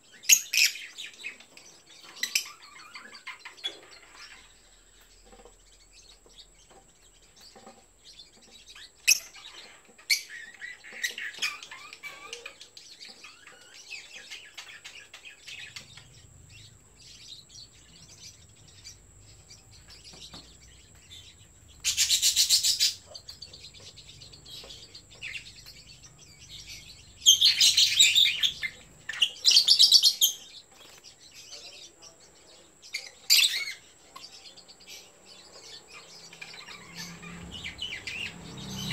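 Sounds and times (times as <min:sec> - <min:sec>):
bird chirps: 0:00.0 - 0:38.9.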